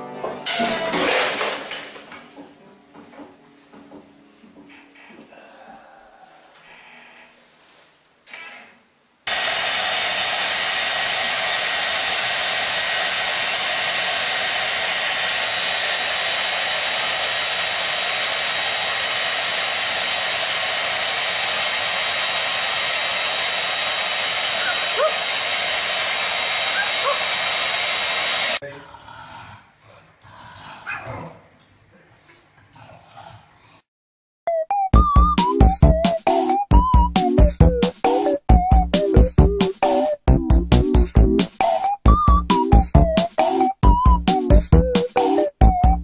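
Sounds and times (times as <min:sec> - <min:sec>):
hair dryer running with high whine: 0:09.3 - 0:28.6.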